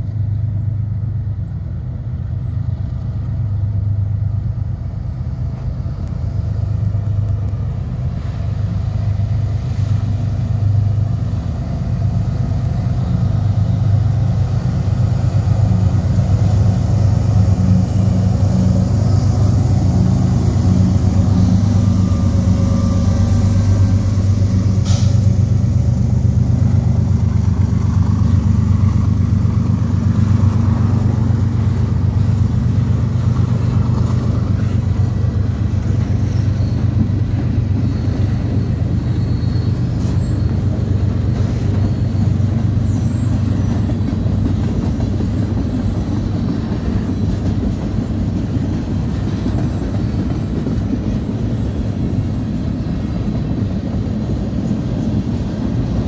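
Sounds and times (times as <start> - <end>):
locomotive engine rumble: 0.0 - 56.0
train wheels rumbling on rail: 0.0 - 56.0
faint high squeal: 21.0 - 25.5, 36.1 - 43.9.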